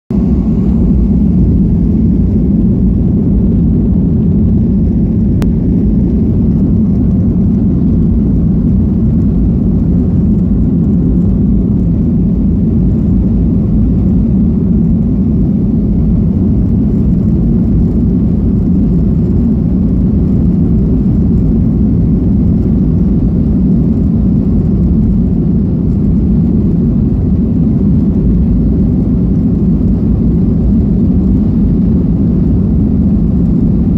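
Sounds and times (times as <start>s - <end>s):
jet engines rumbling: 0.1s - 33.9s.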